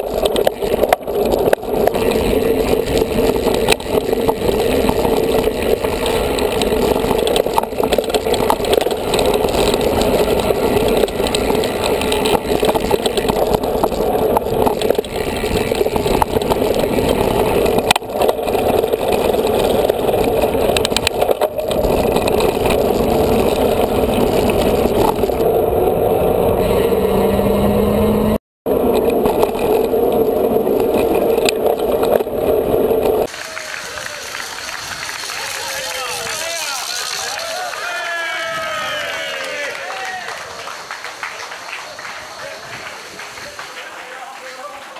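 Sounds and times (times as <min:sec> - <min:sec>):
wind noise: 0:00.0 - 0:33.3
bike rattling: 0:00.0 - 0:44.9.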